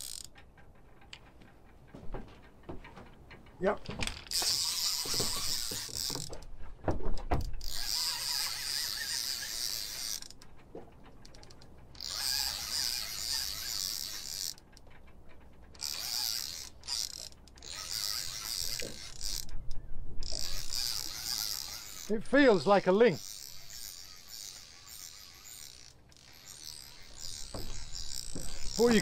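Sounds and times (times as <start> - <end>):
fishing reel whirring: 0.0 - 0.4, 4.1 - 6.4, 7.6 - 10.4, 11.2 - 14.9, 15.7 - 29.0.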